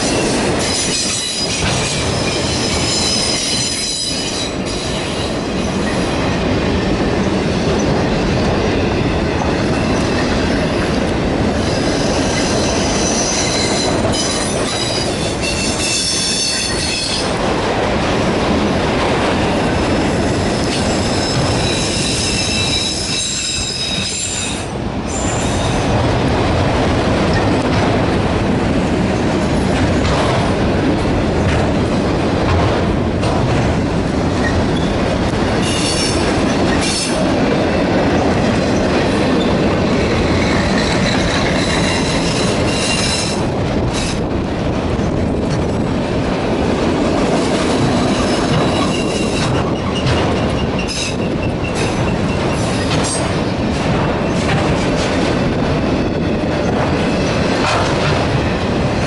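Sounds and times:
train wheels squealing: 0.0 - 6.2, 11.6 - 17.2, 20.3 - 25.9, 34.4 - 35.0, 35.6 - 37.2, 39.4 - 43.4, 47.9 - 53.2
freight train wheels clattering: 0.0 - 59.0.

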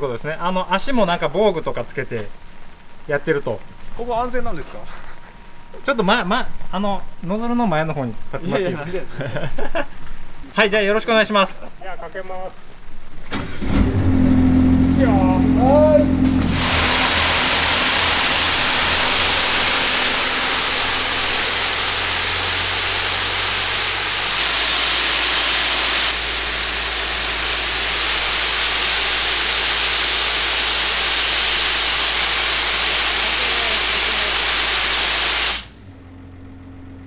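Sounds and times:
pump engine humming: 15.2 - 35.8
water jet hissing: 16.2 - 35.8.

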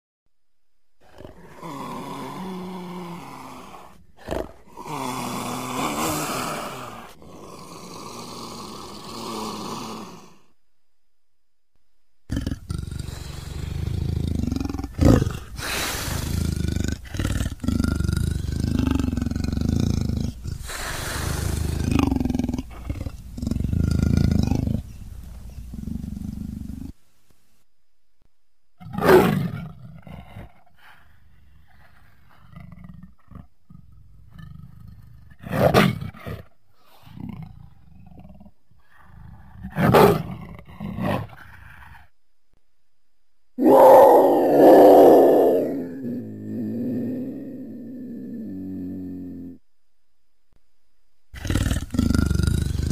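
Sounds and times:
leopard grunting: 1.0 - 10.4, 12.3 - 27.0, 51.4 - 52.9
leopard roaring and growling: 1.0 - 10.4, 12.3 - 27.0, 28.8 - 42.1, 43.6 - 49.6, 51.4 - 52.9.

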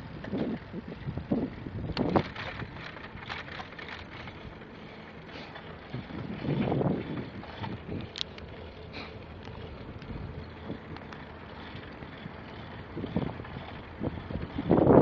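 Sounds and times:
wind rushing over microphone: 0.0 - 3.3, 5.9 - 8.3, 12.2 - 15.0
bicycle clicks and rattles: 0.0 - 15.0.

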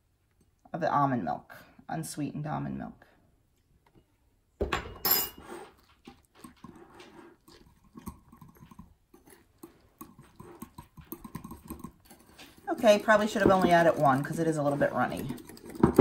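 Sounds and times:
whisk ticking and scraping glass bowl: 5.4 - 16.0.

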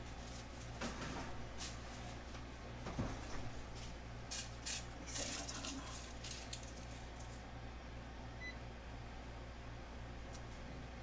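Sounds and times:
rustling and handling noises: 0.0 - 7.4.

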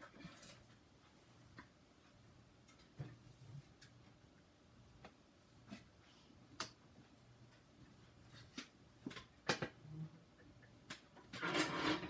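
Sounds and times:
ceiling fan hum: 0.0 - 12.0.

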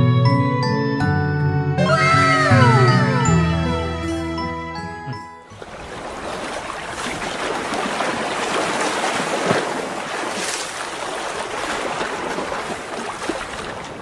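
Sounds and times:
hands splashing in bath water: 5.6 - 13.8.

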